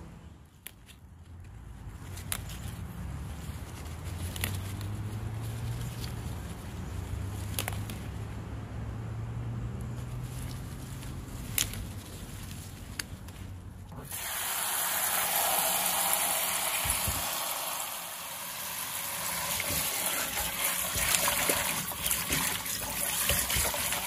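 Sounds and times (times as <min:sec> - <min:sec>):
faint outdoor sounds: 0:00.0 - 0:14.2
tap water gushing into bowl: 0:14.1 - 0:24.0
hand swishing leaves in water: 0:18.2 - 0:24.0.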